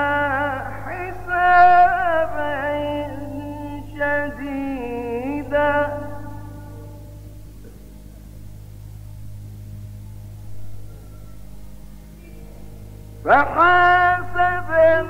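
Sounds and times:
man chanting recitation: 0.0s - 7.2s, 12.2s - 15.0s
steady low hum: 0.0s - 15.0s.

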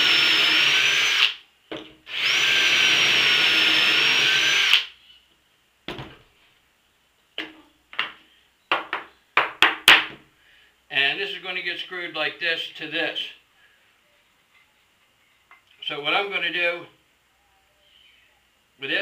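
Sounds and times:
cordless drill boring: 0.0s - 1.4s, 2.1s - 4.9s.

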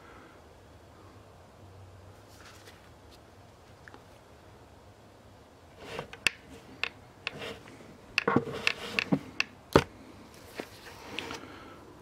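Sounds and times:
sharp irregular clicks and knocks: 6.0s - 9.9s.

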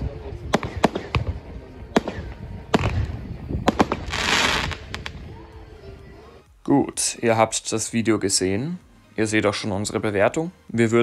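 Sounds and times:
firework bangs: 0.4s - 5.2s
firework hissing spray: 2.8s - 5.2s.

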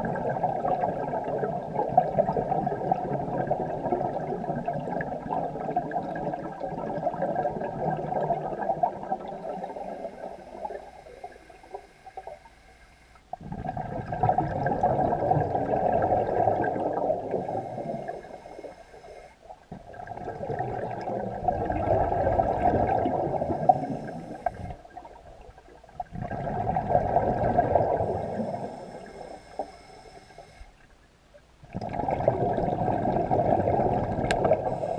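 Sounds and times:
bubbly exhalations underwater: 0.0s - 11.3s, 13.3s - 18.2s, 19.5s - 29.1s, 31.6s - 34.9s
diver breathing through regulator: 9.3s - 13.3s, 17.2s - 19.4s, 22.9s - 24.8s, 27.5s - 30.7s, 34.4s - 34.9s.

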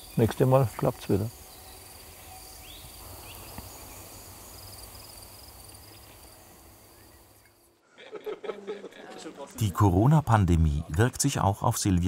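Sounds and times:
bird chirps: 0.0s - 4.2s
insects trilling: 0.0s - 7.8s.

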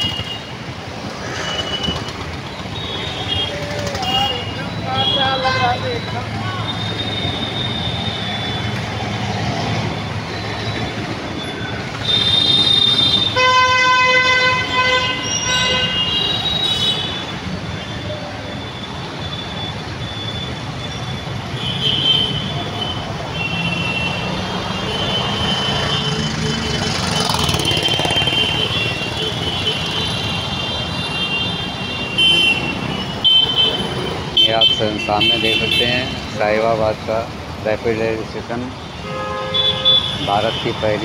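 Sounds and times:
rumble of passing vehicles: 0.0s - 41.0s
long vehicle horn blast: 12.0s - 16.2s.

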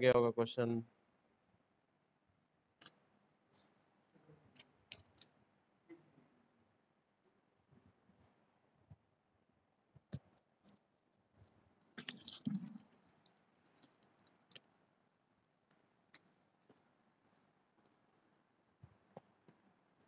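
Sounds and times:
handling clicks and rustle: 11.4s - 14.8s.

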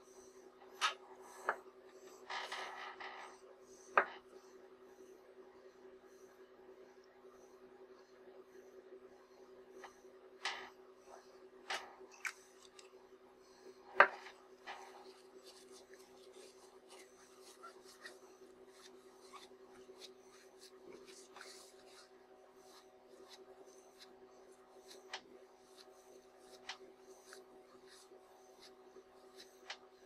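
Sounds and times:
steady low hum: 0.0s - 30.0s
tissue scratching on lens: 14.6s - 29.8s.

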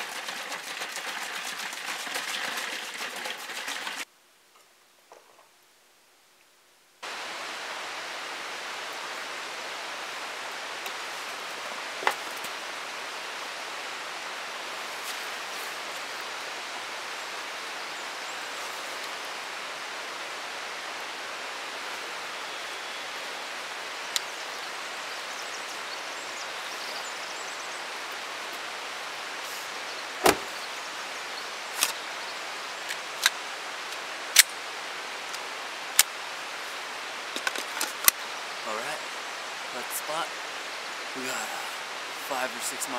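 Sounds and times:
creek rushing: 0.0s - 4.1s, 7.0s - 42.9s
car door shutting: 30.2s - 30.6s.

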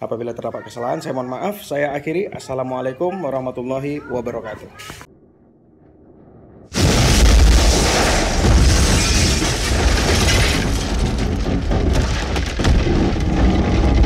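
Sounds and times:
noisy crackle: 5.4s - 14.0s
deep booming rumble: 6.1s - 14.0s.

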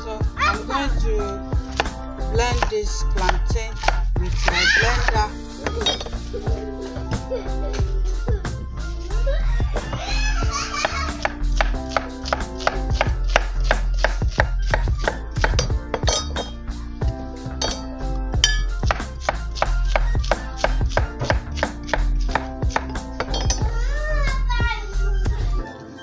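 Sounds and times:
background music: 0.0s - 26.0s
knife chopping on wooden board: 2.6s - 6.0s, 10.8s - 16.6s, 18.7s - 23.6s.

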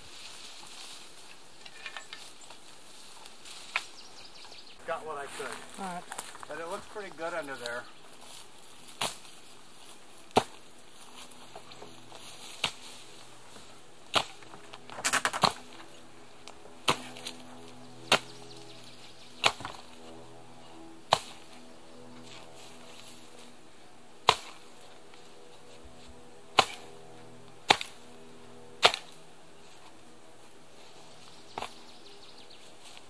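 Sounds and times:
chopping tool striking roots and ground: 10.3s - 10.6s, 12.6s - 12.8s, 14.1s - 15.6s, 16.8s - 17.3s, 19.4s - 19.8s, 21.1s - 21.5s, 24.2s - 24.6s, 26.6s - 26.9s, 27.7s - 28.0s, 28.8s - 29.2s.

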